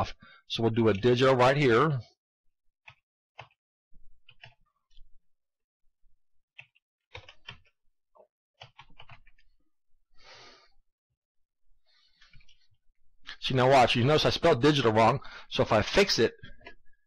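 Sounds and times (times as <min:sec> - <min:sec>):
keyboard keys clicking: 0:08.6 - 0:09.4.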